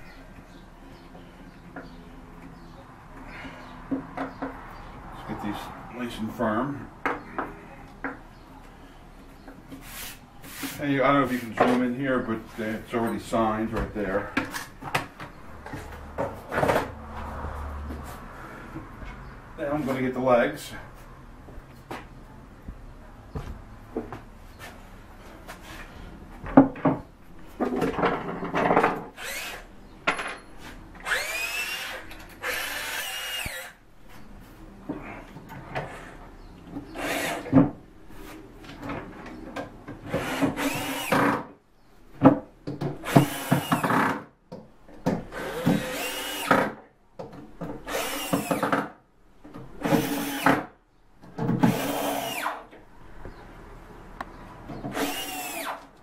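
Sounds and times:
cordless drill whining: 29.2 - 29.6, 31.0 - 33.7, 40.2 - 41.3, 45.3 - 46.6, 47.9 - 48.6, 51.7 - 52.6, 54.9 - 55.8.

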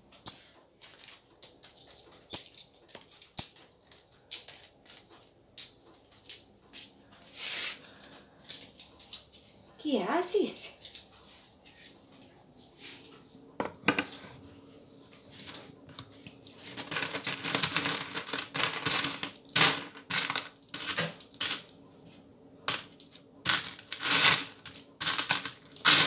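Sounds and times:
coins clinking in a bowl: 0.2 - 9.4, 16.7 - 21.7, 22.7 - 26.0.

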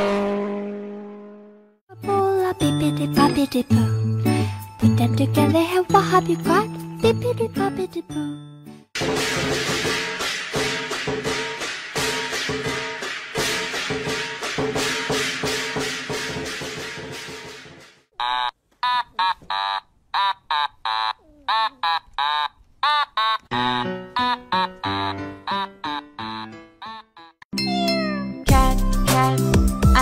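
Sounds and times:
chirping electronic bleeps: 18.2 - 28.1
upbeat background music: 27.7 - 30.0.

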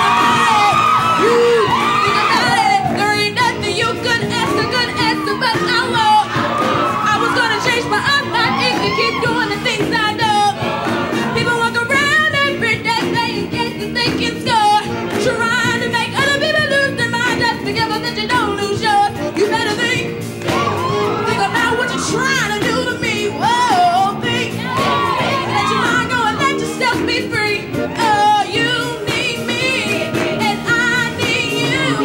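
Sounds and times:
choir singing: 0.0 - 12.6, 19.2 - 32.0
live band playing: 0.0 - 32.0.

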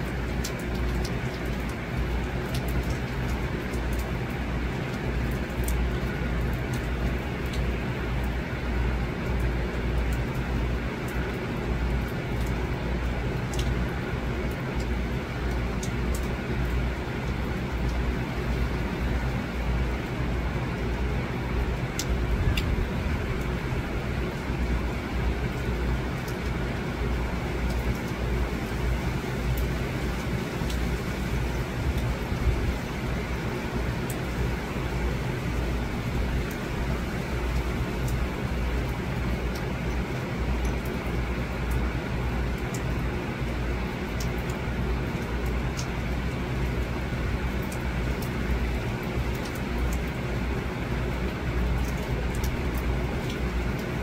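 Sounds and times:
steady rain falling: 0.0 - 54.0
wind rumble on microphone: 21.4 - 24.2, 30.3 - 33.4.

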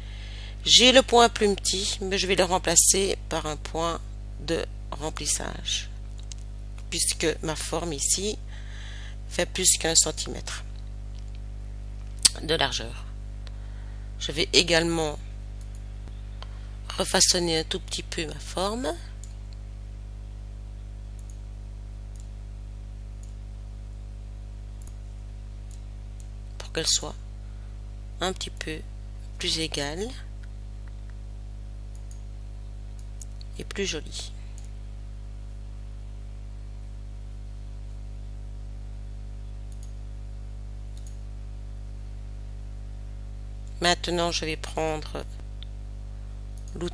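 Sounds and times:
steady low hum: 0.0 - 46.9
computer mouse clicks: 21.2 - 21.4, 22.1 - 22.3, 31.9 - 32.2, 39.7 - 40.0, 41.0 - 41.2.

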